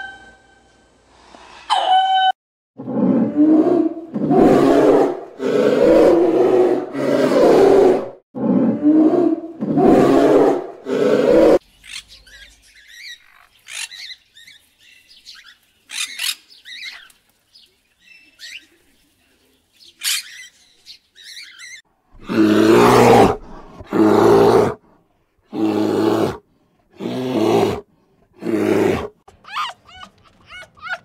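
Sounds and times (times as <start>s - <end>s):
polar bear roaring: 2.8s - 11.6s, 22.2s - 24.8s, 25.5s - 26.4s, 27.0s - 27.8s, 28.4s - 29.2s
macaws squawking and chirping: 20.0s - 21.8s.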